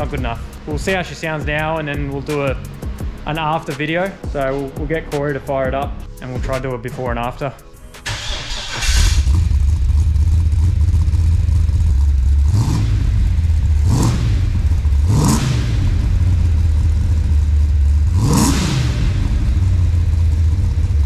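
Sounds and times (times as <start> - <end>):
car engine idling and revving: 0.0 - 5.0, 8.0 - 21.0.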